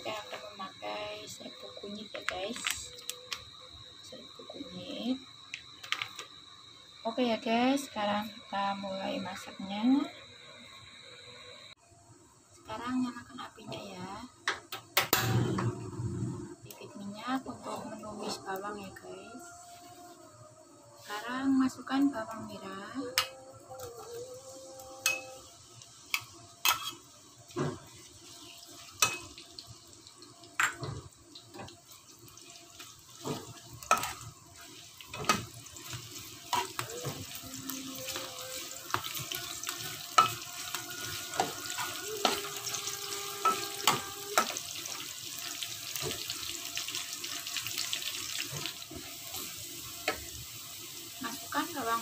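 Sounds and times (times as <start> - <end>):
shallots sizzling in oil: 0.0 - 15.5, 16.6 - 52.0
metal spatula scraping pan: 38.0 - 44.6.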